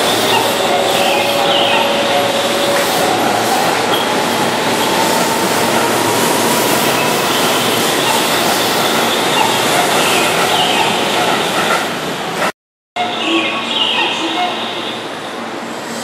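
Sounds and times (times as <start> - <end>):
train wheels running on rails: 0.0 - 12.5.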